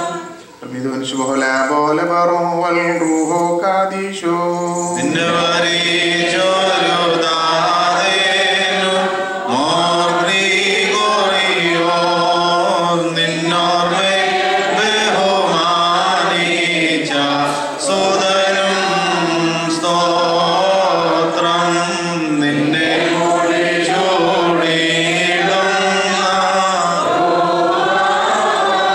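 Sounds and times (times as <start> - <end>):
choir chanting a hymn: 0.0 - 28.9.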